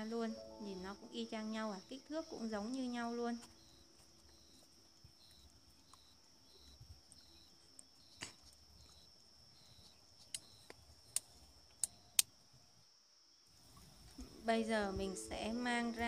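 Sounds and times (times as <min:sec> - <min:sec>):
insects chirping: 0:00.0 - 0:16.0
small water sounds: 0:13.5 - 0:14.4.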